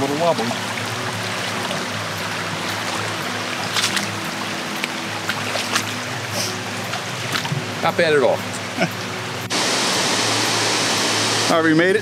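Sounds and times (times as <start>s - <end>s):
soft background music: 0.0s - 10.0s
creek trickling: 0.0s - 11.8s.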